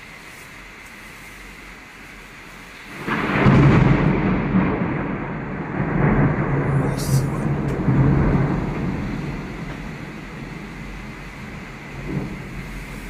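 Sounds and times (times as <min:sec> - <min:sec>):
rain hiss: 0:00.0 - 0:13.0
thunderclap with deep rumble: 0:02.9 - 0:13.0.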